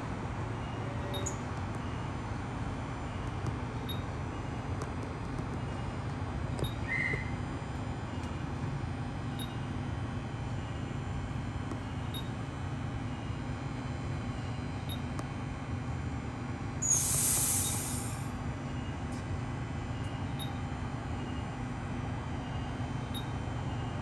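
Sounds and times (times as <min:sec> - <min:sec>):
air hissing: 0:16.8 - 0:18.3.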